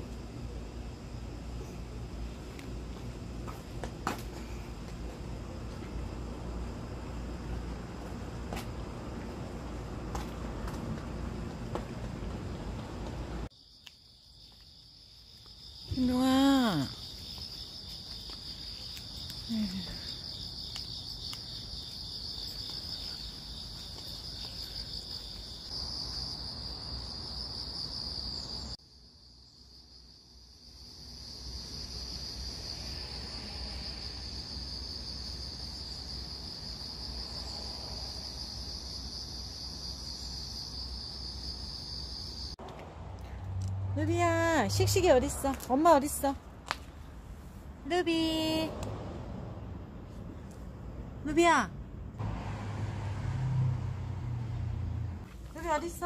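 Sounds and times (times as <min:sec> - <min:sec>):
insects chirring: 0:00.0 - 0:42.6.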